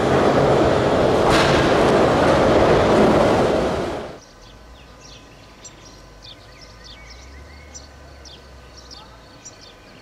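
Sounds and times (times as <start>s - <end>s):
electric train rumbling: 0.0s - 5.2s
birds chirping: 4.1s - 10.0s.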